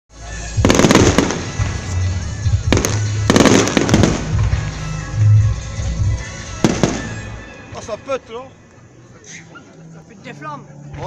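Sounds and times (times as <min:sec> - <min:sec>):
fireworks bangs: 0:00.6 - 0:05.3, 0:06.3 - 0:07.4.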